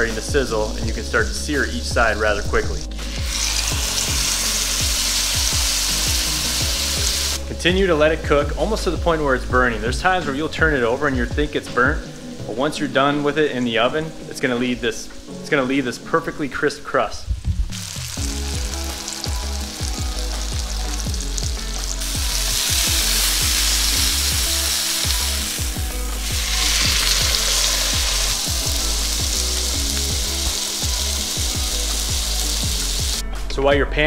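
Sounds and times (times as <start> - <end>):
meat sizzling in a frying pan: 1.9 - 7.4, 17.6 - 33.2.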